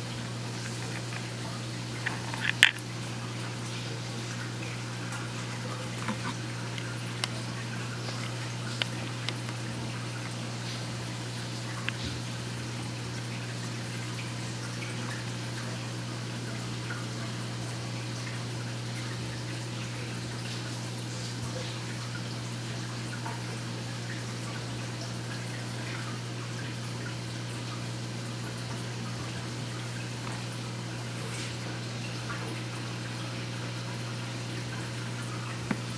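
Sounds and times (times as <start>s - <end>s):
aquarium pump humming: 0.0s - 35.9s
trickling water: 0.0s - 35.9s
faint drips and ticks: 3.7s - 12.3s.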